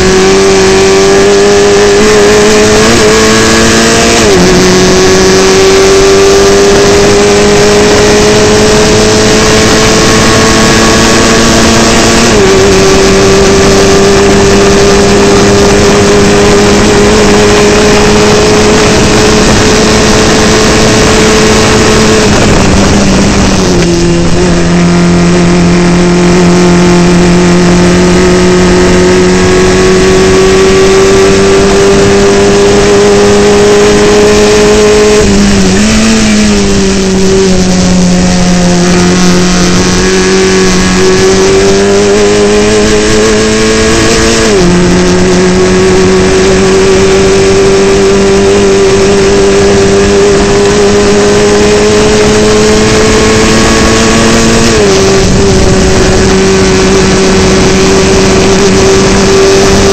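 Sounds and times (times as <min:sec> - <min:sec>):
racing engine at high revs: 0:00.0 - 0:59.9.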